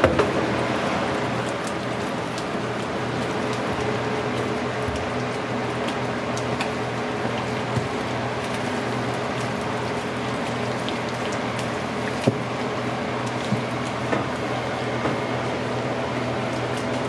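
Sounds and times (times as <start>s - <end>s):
kitchen machinery hum: 0.0s - 17.0s.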